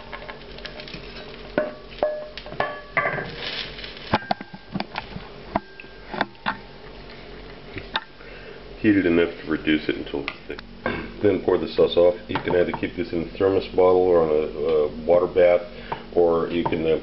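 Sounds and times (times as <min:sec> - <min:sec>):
bowl clinking against pan: 0:01.6 - 0:03.1.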